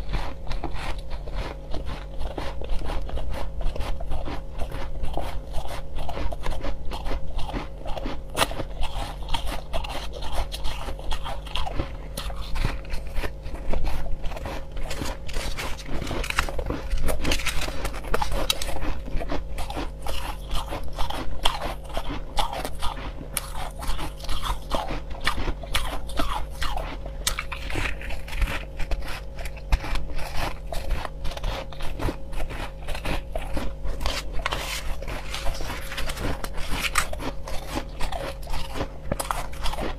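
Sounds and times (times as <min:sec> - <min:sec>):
crushed ice being chewed: 0:00.0 - 0:39.9.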